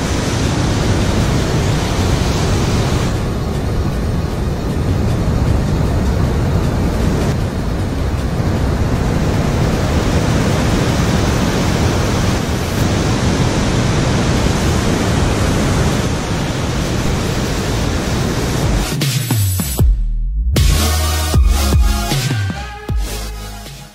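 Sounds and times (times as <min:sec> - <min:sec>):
waterfall roaring: 0:00.0 - 0:18.9.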